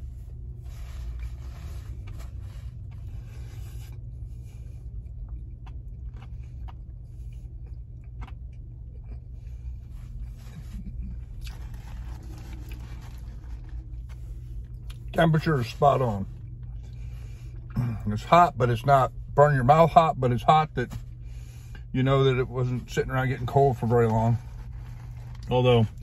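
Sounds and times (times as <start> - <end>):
low hum inside car: 0.0 - 26.0
person chewing: 0.1 - 15.1
paper wrapper rustling: 10.4 - 14.3.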